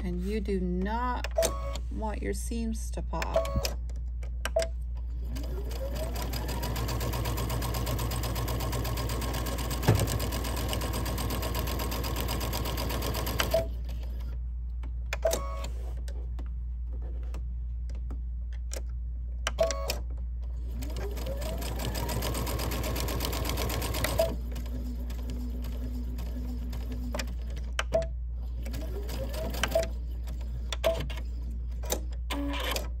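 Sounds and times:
sewing machine stitching: 5.3s - 13.7s, 20.7s - 27.5s, 28.6s - 29.9s.

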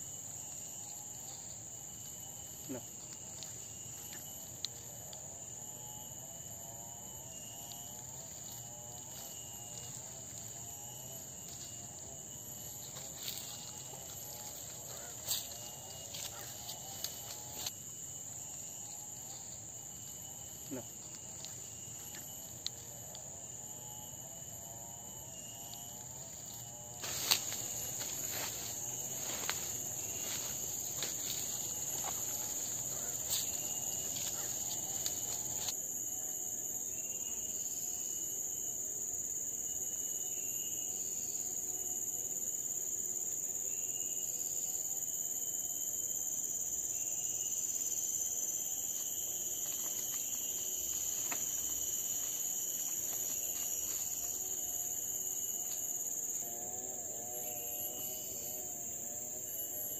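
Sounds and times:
high-pitched insect drone: 0.0s - 59.9s
rustling through undergrowth: 8.0s - 22.9s, 26.2s - 35.7s, 48.9s - 56.0s.

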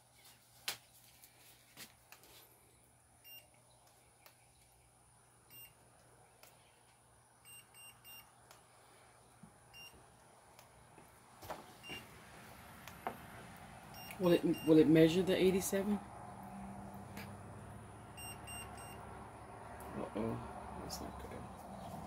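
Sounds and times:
thermometer electronic beeps: 5.5s - 5.8s, 7.4s - 8.3s, 13.9s - 14.9s, 18.1s - 19.1s.

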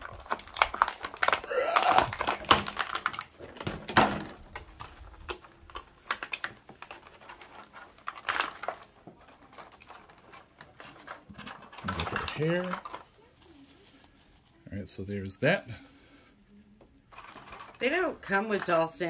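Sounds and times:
plastic box clicking and crackling: 0.0s - 13.2s, 17.1s - 19.0s.

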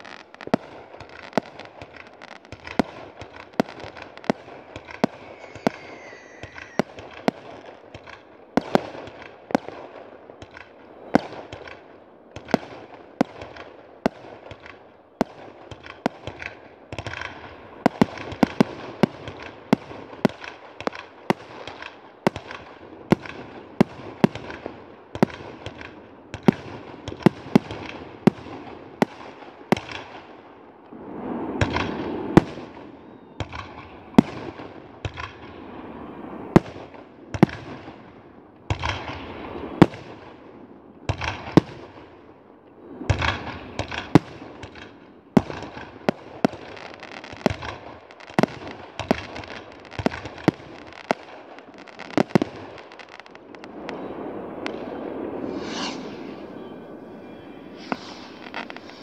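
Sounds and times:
fireworks bangs: 0.0s - 9.4s, 43.1s - 59.0s
fireworks crackling: 0.0s - 9.7s, 43.0s - 59.0s
rocket rushing hiss: 4.9s - 7.4s, 54.9s - 59.0s.

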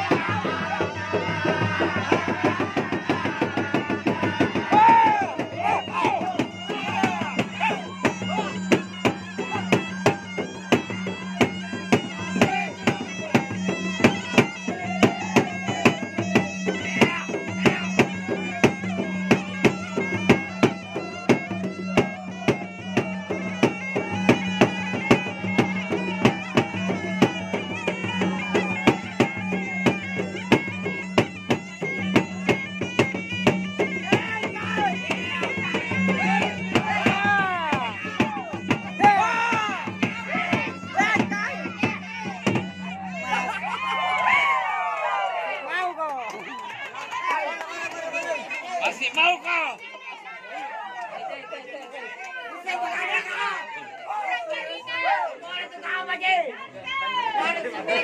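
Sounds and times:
drums beaten in fast rhythm: 0.0s - 44.4s.

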